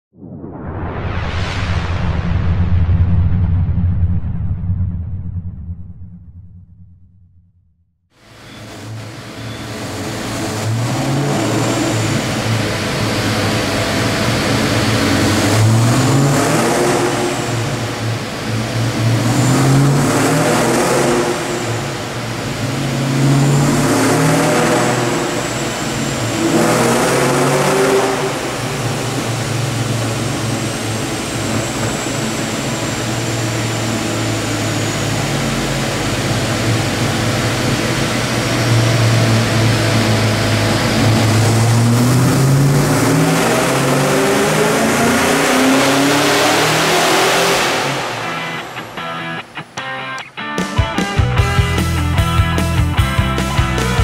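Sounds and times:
supercharged engine revving: 8.6s - 49.5s.

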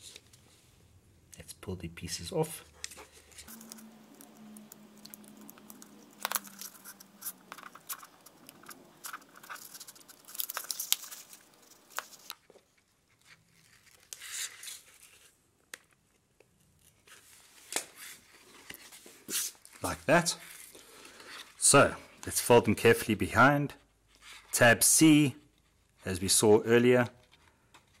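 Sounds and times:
backing paper peeling off tape: 2.8s - 12.5s.

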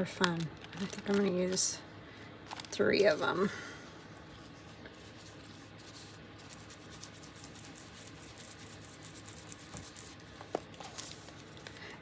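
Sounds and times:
hands scratching and ticking paper: 4.9s - 11.8s.

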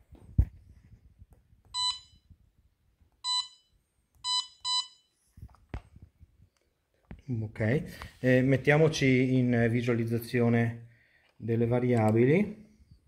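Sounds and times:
touch panel beeps: 1.8s - 2.2s, 3.2s - 3.6s, 4.2s - 5.0s.

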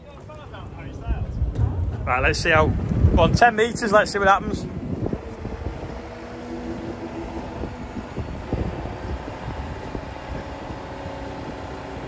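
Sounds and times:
diesel engine under load: 0.0s - 12.0s
hydraulic whine: 4.0s - 12.0s.

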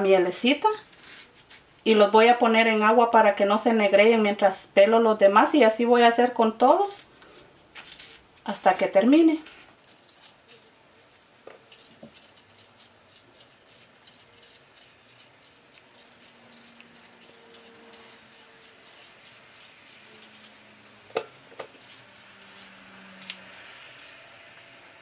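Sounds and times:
knife scraping through fruit: 9.4s - 10.8s, 11.5s - 25.0s.

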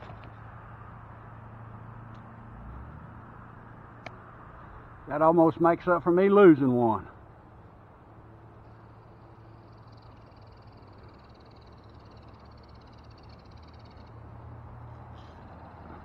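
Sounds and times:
fishing reel whirring: 9.5s - 14.2s.

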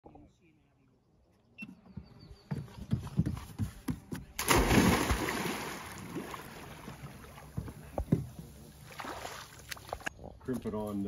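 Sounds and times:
person splashing into water: 4.4s - 7.5s, 8.8s - 10.0s
water churning: 4.4s - 7.8s.

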